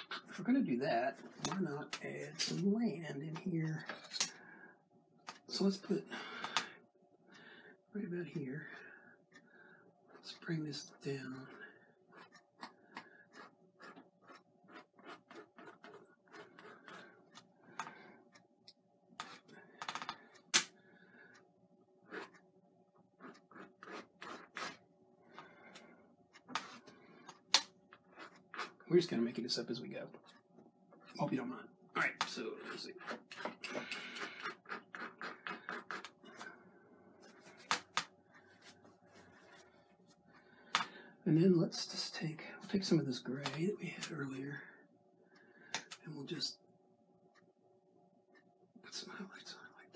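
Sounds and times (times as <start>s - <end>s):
paintbrush scratching on canvas: 13.3s - 17.1s, 23.2s - 24.8s, 34.2s - 36.4s.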